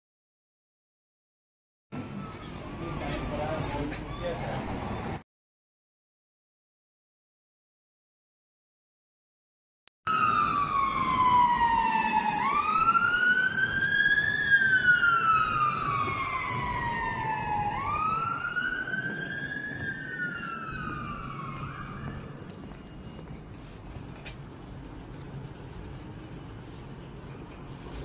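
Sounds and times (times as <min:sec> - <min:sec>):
low rumble of street noise: 0:01.9 - 0:05.2, 0:10.1 - 0:28.0
siren wailing: 0:10.1 - 0:24.0.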